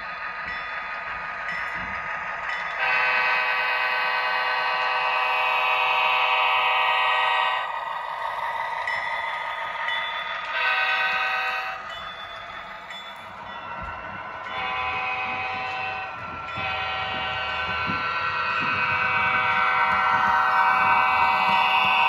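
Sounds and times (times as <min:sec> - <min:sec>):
locomotive horn blasts: 0:02.8 - 0:07.6, 0:10.6 - 0:11.8.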